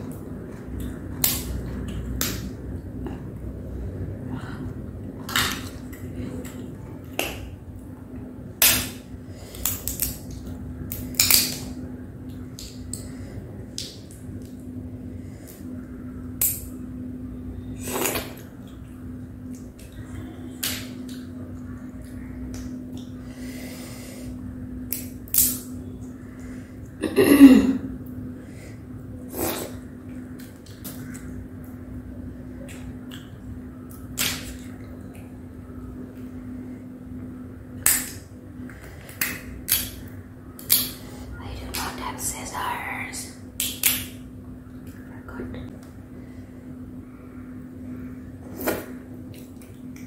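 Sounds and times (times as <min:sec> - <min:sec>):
steady low hum: 0:00.0 - 0:50.0
shells cracking and snapping: 0:08.6 - 0:13.1, 0:13.7 - 0:14.6, 0:16.3 - 0:16.7, 0:24.8 - 0:25.8, 0:37.8 - 0:41.0, 0:43.6 - 0:44.2.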